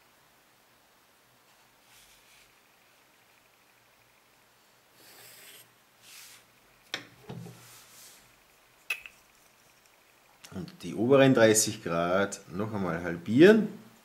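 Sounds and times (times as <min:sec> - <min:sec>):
set square sliding over paper: 0:01.5 - 0:02.6, 0:05.0 - 0:06.5, 0:07.3 - 0:08.3.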